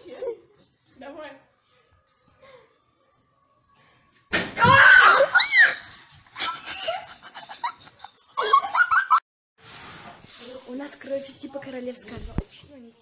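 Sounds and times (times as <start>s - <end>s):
girls shrieking and squealing: 4.6s - 7.0s.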